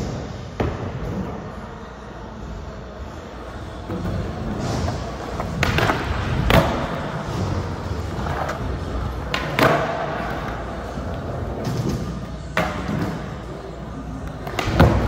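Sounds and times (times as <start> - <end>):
skateboard wheels rolling: 3.1 - 15.0
skateboard clacking on the ground: 4.6 - 13.3.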